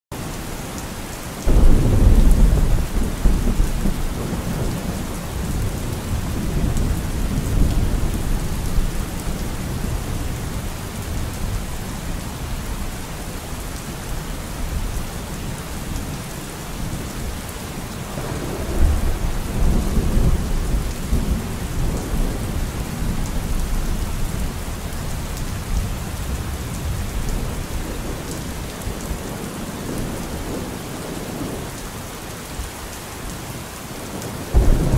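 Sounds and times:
steady rain falling: 0.1 - 34.9
thunder rolling: 1.5 - 9.2, 34.5 - 34.9.

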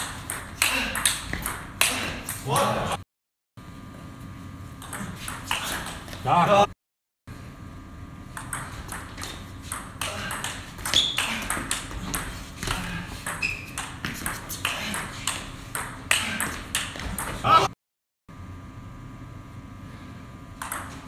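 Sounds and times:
table tennis ball clicks: 20.6 - 21.0.

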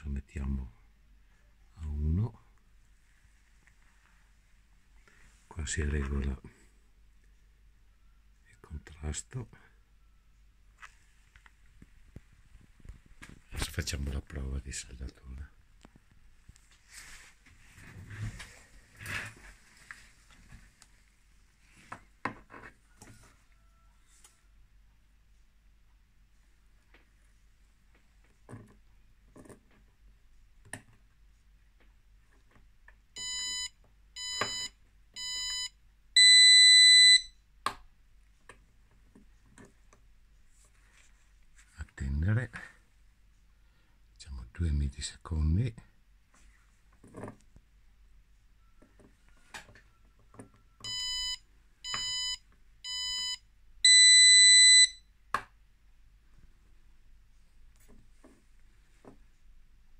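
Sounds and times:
buzzer beeps: 33.2 - 37.4, 50.8 - 55.0.

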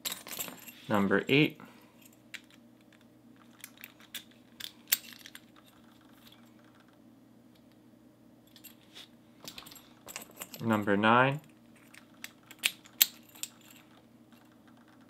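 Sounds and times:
keys jingling: 9.4 - 10.8, 11.8 - 14.0.

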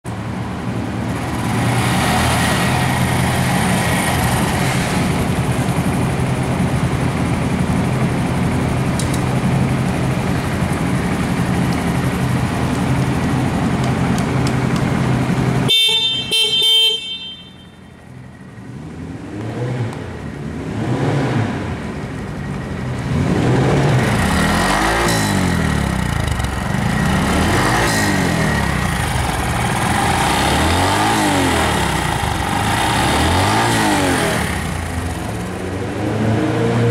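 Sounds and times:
motorcycle engine idling and revving: 0.0 - 36.9
motorcycle horn: 15.6 - 18.0.

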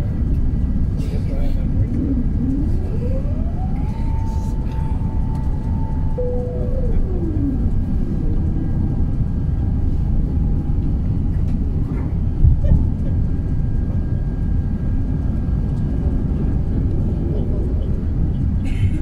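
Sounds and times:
airplane cabin rumble: 0.0 - 19.0
descending whine: 1.7 - 11.0.

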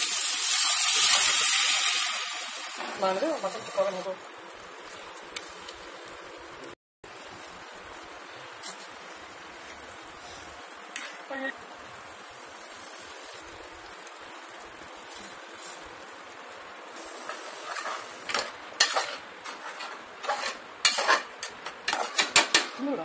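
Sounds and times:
faint steady hiss: 0.0 - 21.9
ladle scraping metal pot: 17.3 - 22.6.

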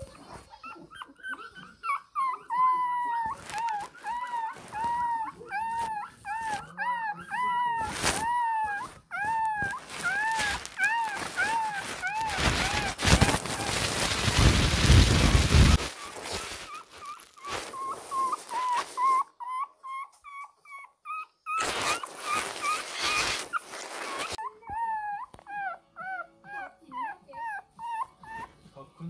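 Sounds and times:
puppy whimpering in high squeaks: 0.0 - 28.6
loud rustling: 7.8 - 19.2, 21.6 - 24.4.

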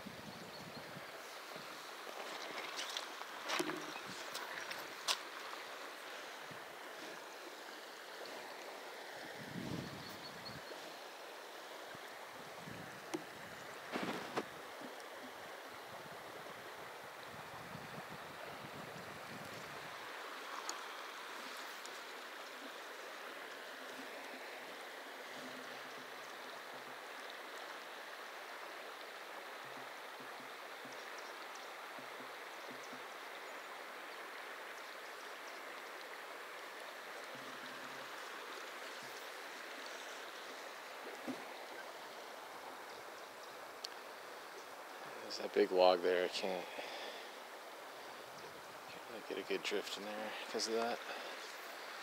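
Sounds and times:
river water rushing: 0.8 - 52.0
faint clicks: 43.4 - 44.0.

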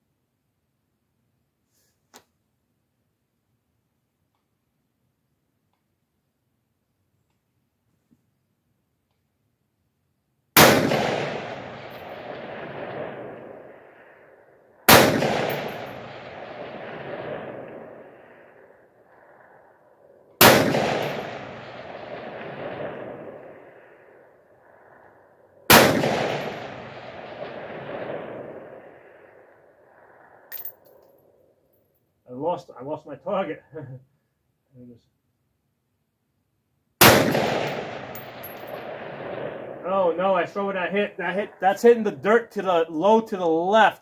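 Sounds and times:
rolling echo off hills: 10.4 - 44.0
rifle shots: 10.6 - 18.7, 20.4 - 24.2, 25.7 - 29.5, 37.0 - 39.8.

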